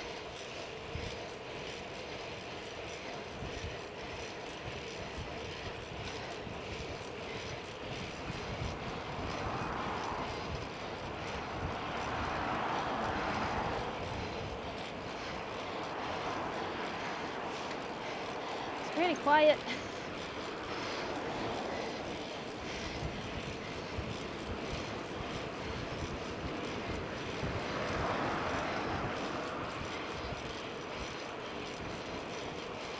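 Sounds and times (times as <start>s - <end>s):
wind and bicycle tyre noise: 0.0s - 32.9s.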